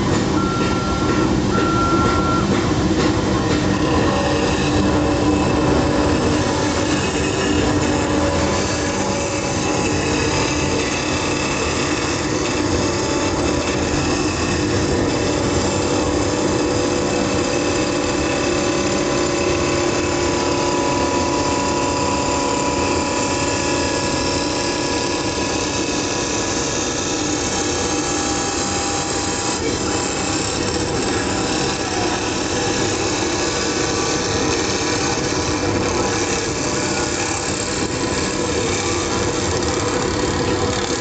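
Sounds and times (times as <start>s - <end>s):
high machine tone: 0.0s - 12.1s
cutter shaving wood: 0.0s - 41.0s
lathe machine hum and whine: 0.0s - 41.0s.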